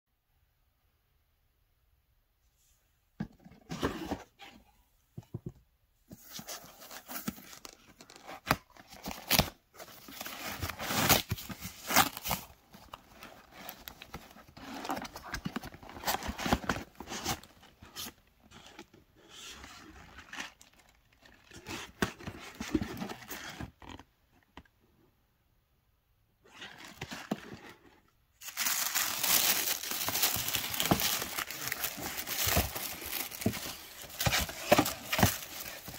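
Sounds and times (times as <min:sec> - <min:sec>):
bubble wrap and paper rustling: 0:06.3 - 0:23.6, 0:26.5 - 0:35.9.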